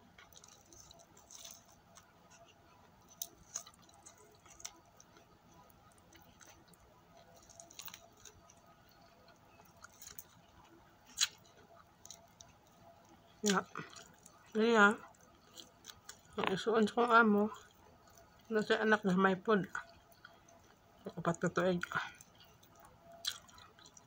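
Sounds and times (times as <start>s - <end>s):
fried chicken crackling: 0.0s - 19.0s.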